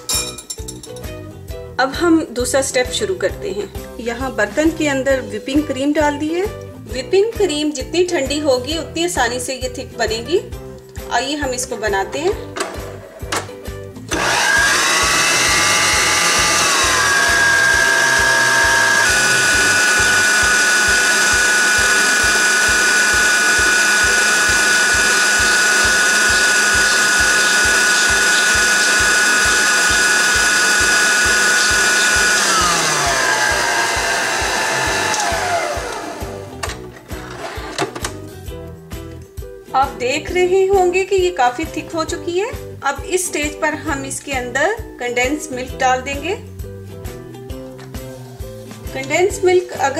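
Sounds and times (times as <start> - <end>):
stand mixer motor whining: 12.6 - 38.2.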